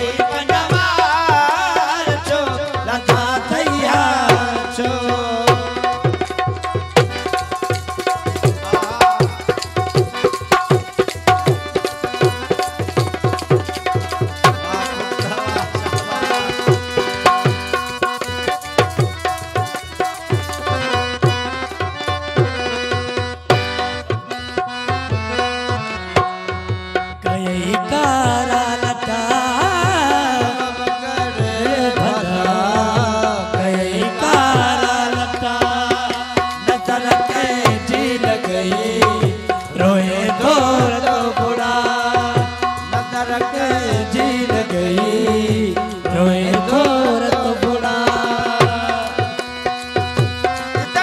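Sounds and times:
drums beating: 0.0 - 30.5.

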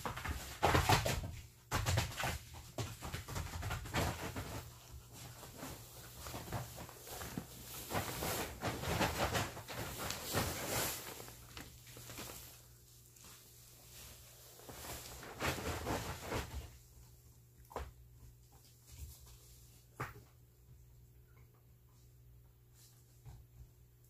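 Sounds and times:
plastic tarp crinkling under dogs: 0.0 - 16.8.

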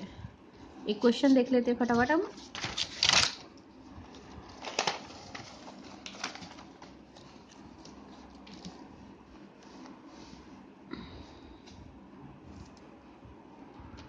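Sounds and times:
paper rustling: 2.3 - 10.1.

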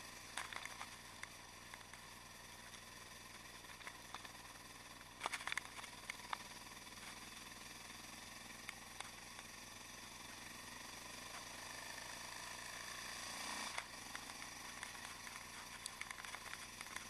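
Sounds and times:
motorcycle engine idling: 0.0 - 17.0
sharp clicks: 0.3 - 7.2, 13.7 - 17.0.

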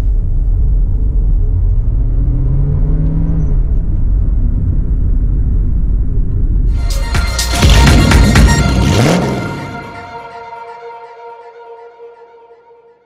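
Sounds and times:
road rumble: 0.0 - 10.2
car engine: 0.0 - 10.6.

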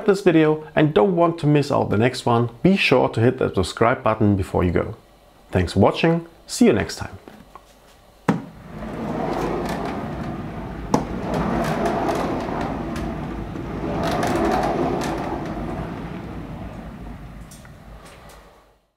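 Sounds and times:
knock: 8.3 - 8.5
turntable rolling rumble: 8.3 - 18.8
click: 17.4 - 18.4.

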